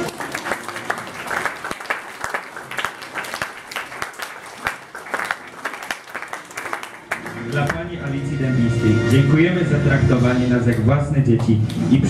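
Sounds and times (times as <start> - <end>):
people applauding: 0.0 - 8.2.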